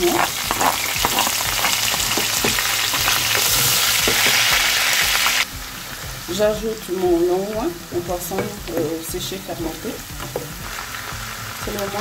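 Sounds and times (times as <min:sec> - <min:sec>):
wooden spatula stirring: 0:00.0 - 0:04.8
onions sizzling in hot oil: 0:00.0 - 0:12.0.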